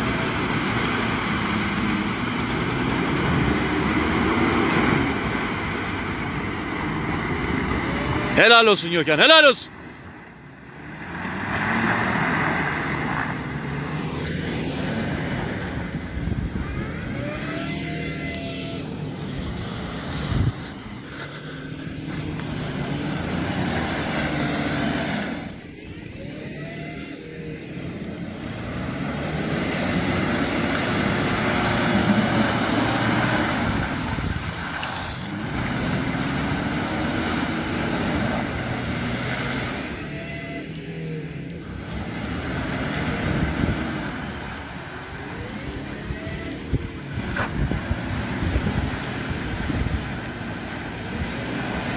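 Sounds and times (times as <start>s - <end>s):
wheels churning through mud and water: 0.0s - 51.9s
rush of spray: 29.2s - 39.6s.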